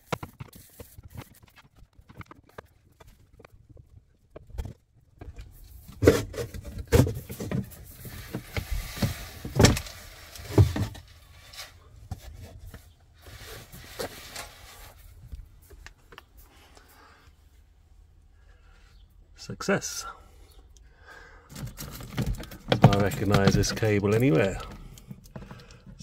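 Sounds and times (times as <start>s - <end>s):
quiet handling: 21.6s - 26.0s.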